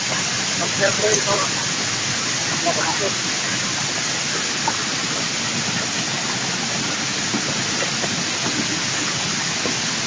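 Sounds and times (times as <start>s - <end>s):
steady rushing hiss: 0.0s - 10.0s
footsteps on stone path: 4.3s - 10.0s.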